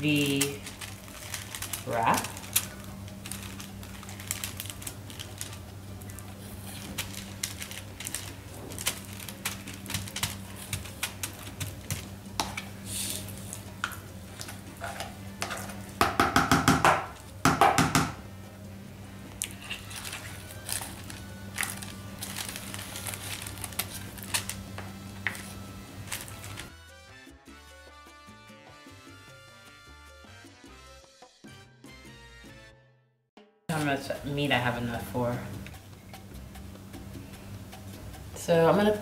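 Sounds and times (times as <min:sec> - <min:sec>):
paper crinkling: 0:00.1 - 0:15.9, 0:19.4 - 0:26.7
spoon grating in bowl: 0:10.4 - 0:15.9
spoon scraping and tapping: 0:11.7 - 0:12.7, 0:13.8 - 0:16.1.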